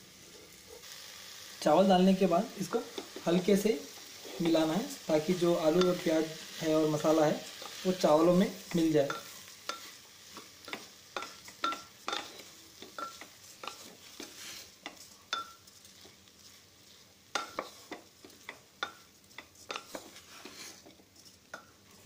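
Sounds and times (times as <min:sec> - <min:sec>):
food sizzling: 0:00.0 - 0:22.0
spoon tapping metal pot: 0:10.6 - 0:13.8, 0:14.8 - 0:15.6.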